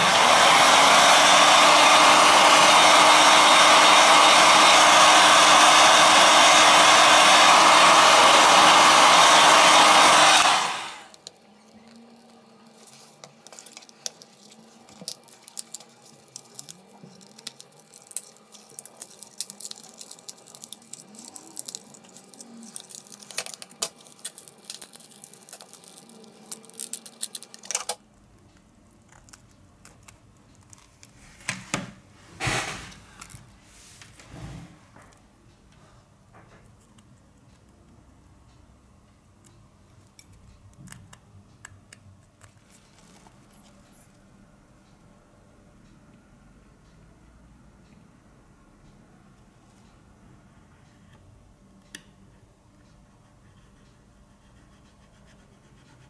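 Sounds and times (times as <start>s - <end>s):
heat gun blowing: 0.0s - 11.2s
faint clicks and scrapes: 11.1s - 31.5s.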